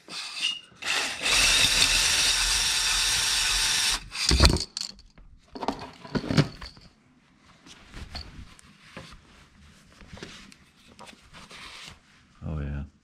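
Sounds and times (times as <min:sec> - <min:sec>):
drill whirring scrape: 0:00.0 - 0:04.6.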